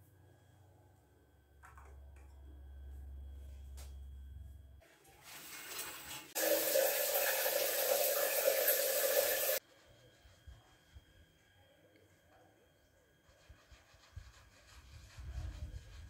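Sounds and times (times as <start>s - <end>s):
shower water pouring: 4.8s - 9.6s.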